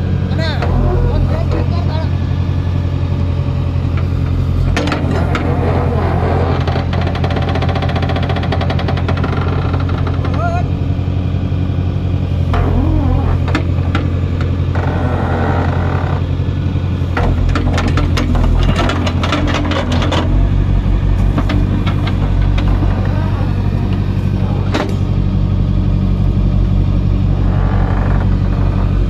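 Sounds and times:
excavator diesel engine running: 0:00.0 - 0:29.0.

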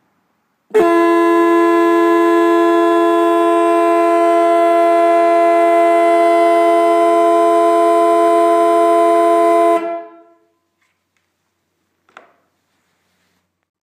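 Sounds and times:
electric horns sounding a chord: 0:00.7 - 0:10.5.

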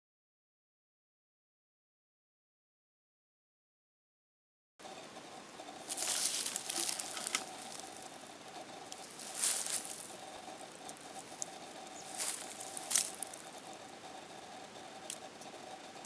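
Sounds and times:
dry tinder crackling: 0:05.2 - 0:16.0.

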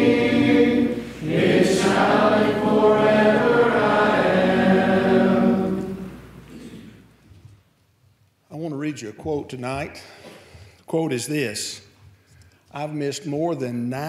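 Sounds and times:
congregation singing a hymn: 0:00.0 - 0:06.9.

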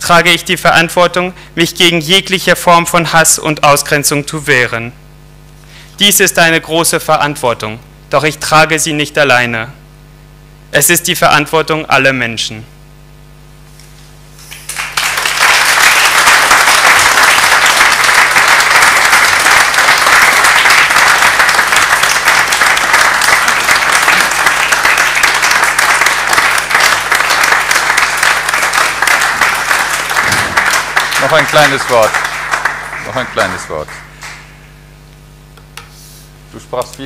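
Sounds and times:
audience applauding: 0:14.4 - 0:34.6.

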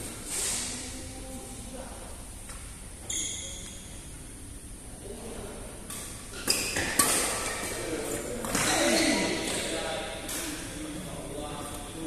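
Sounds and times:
shoe squeak on floor: 0:03.0 - 0:03.9, 0:08.5 - 0:09.5
rackets striking shuttlecock: 0:05.9 - 0:07.8.

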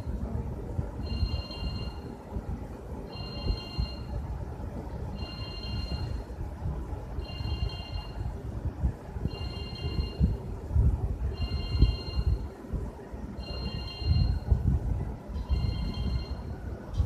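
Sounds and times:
low background rumble: 0:00.0 - 0:17.0
telephone ringing: 0:01.0 - 0:02.2, 0:03.1 - 0:04.2, 0:05.1 - 0:06.4, 0:07.2 - 0:08.2, 0:09.3 - 0:10.4, 0:11.3 - 0:12.5, 0:13.4 - 0:14.5, 0:15.4 - 0:16.6.

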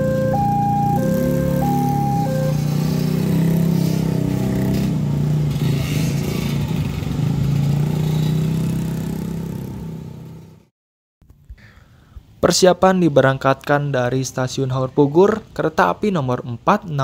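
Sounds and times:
motorcycle engines revving: 0:00.0 - 0:10.5.

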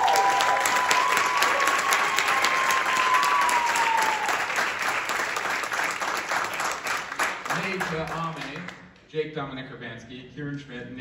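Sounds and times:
audience applause: 0:00.0 - 0:08.8.

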